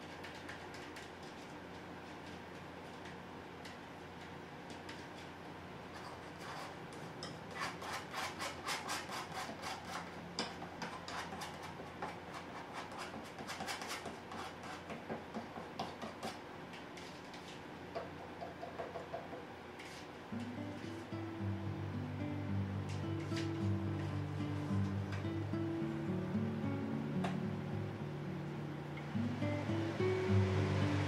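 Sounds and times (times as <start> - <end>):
palette knife scraping paint on canvas: 6.0 - 15.0, 19.8 - 20.1.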